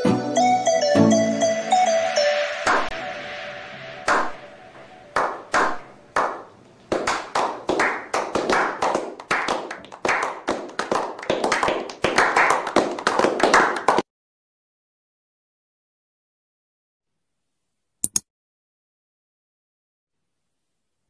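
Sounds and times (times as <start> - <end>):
people clapping: 2.7 - 3.0, 4.0 - 14.1.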